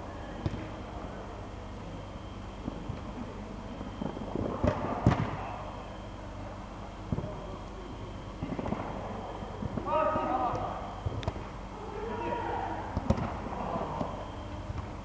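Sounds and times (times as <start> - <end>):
steady low hum: 0.0 - 15.0
football kick thuds echoing: 0.4 - 0.8, 4.3 - 5.5, 12.9 - 15.0.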